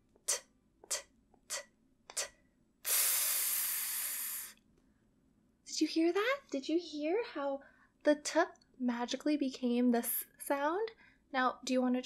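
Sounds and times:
woman hissing s sound: 0:00.2 - 0:04.6
woman making t sounds: 0:00.2 - 0:04.6.

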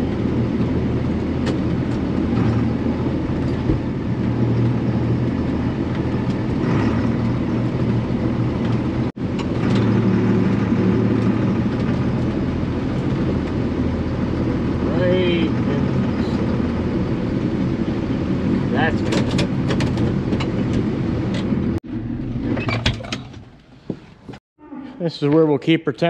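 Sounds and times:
tractor engine running: 0:00.0 - 0:24.4.

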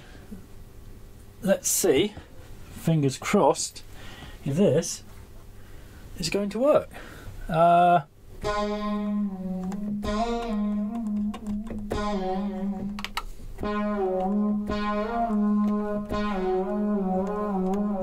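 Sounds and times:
held bass note: 0:08.4 - 0:13.0, 0:13.6 - 0:18.0
synthesizer chords: 0:08.4 - 0:18.0.

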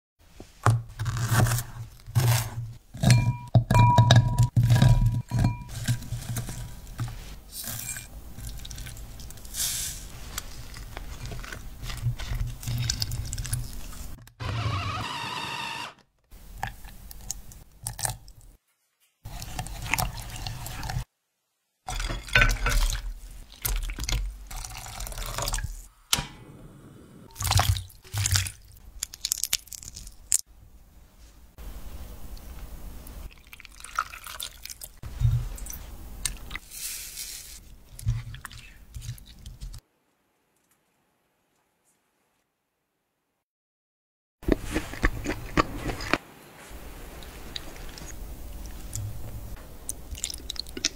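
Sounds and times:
spoon stirring and clinking in pot: 0:03.0 - 0:06.6, 0:21.9 - 0:23.1
water dripping and splashing: 0:49.8 - 0:50.9.

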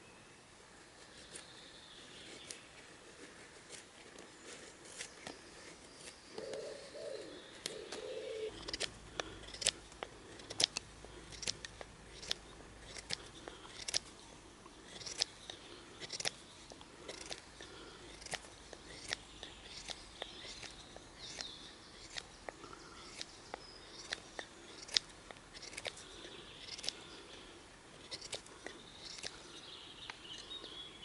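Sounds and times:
knife scraping wooden stick: 0:08.0 - 0:14.1, 0:14.8 - 0:16.4, 0:17.0 - 0:27.3, 0:28.0 - 0:29.5.

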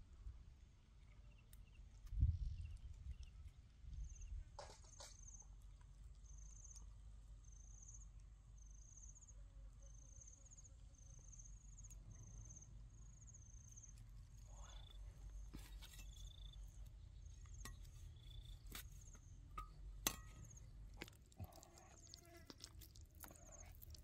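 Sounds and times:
insect chirping: 0:06.2 - 0:19.8.

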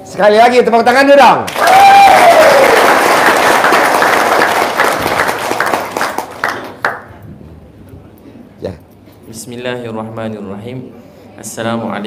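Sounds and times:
audience applauding: 0:01.5 - 0:07.1.

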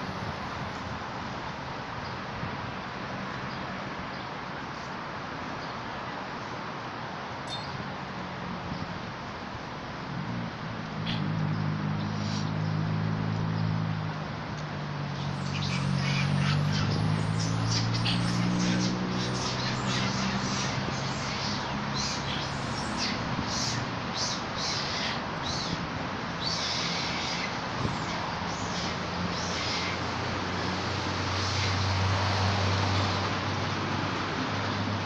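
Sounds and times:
birds chirping: 0:15.1 - 0:25.8, 0:26.4 - 0:30.0.

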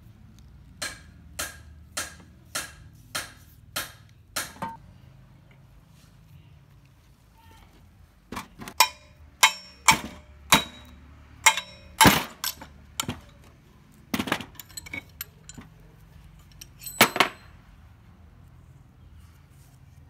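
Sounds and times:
metal tools knocking and clinking: 0:04.5 - 0:04.8, 0:08.8 - 0:17.6.

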